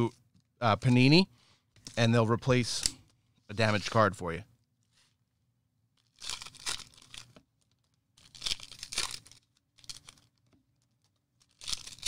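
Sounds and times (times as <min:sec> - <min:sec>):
plastic wrapping torn and crumpled: 0:06.0 - 0:12.0.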